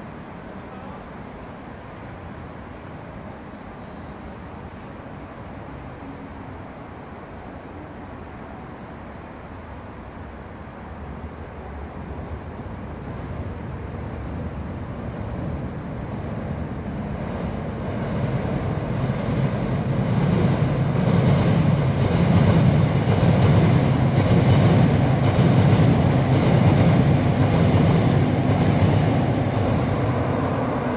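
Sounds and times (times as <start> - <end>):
train wheels rumbling on rail: 9.6 - 30.9.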